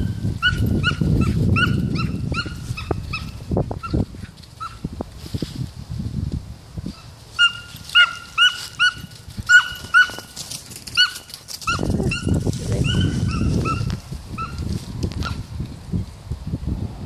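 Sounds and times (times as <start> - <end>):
dog yipping: 0.4 - 4.0, 7.4 - 14.6.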